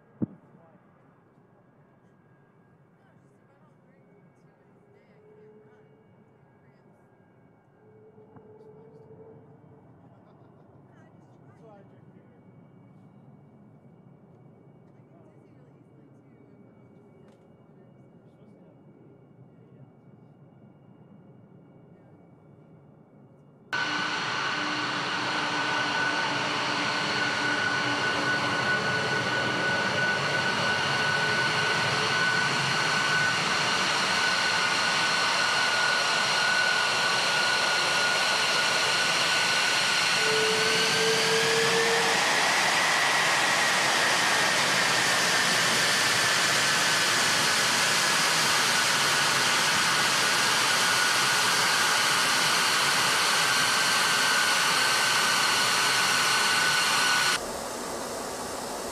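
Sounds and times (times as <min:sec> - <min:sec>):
jet engines whining: 0:23.8 - 0:58.9.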